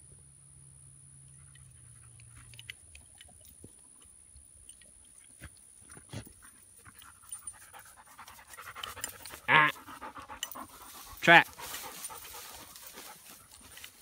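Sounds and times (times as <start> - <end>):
dog panting: 6.1 - 14.0
footsteps crunching through grass: 7.8 - 14.0.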